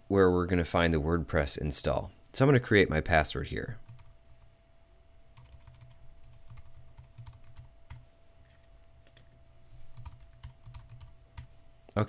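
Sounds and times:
faint steady hum: 0.0s - 12.0s
keyboard typing: 3.8s - 4.2s, 5.4s - 8.1s, 9.0s - 9.3s, 9.9s - 11.5s.

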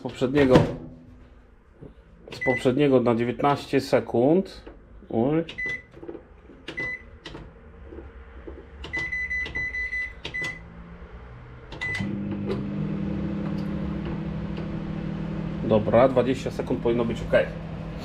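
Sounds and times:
microwave keypad beeps: 2.4s - 2.7s, 5.6s - 5.9s, 6.7s - 7.1s, 8.9s - 10.6s, 11.8s - 12.1s
microwave oven humming: 11.8s - 18.0s.

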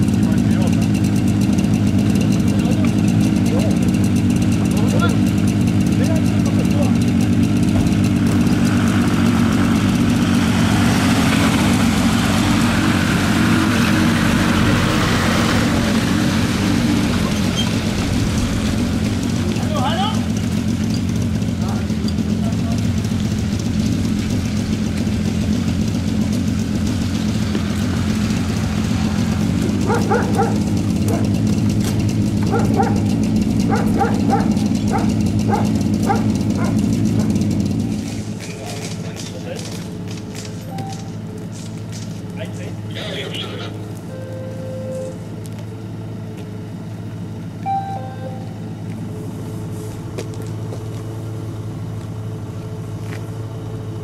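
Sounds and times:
vehicle engine idling: 0.0s - 54.0s
dog barking: 29.8s - 31.4s, 32.5s - 37.4s.

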